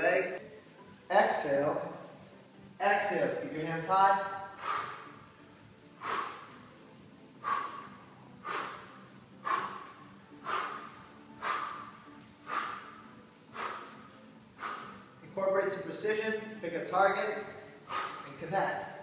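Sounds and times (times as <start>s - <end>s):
man exhaling sharply: 4.3s - 5.2s.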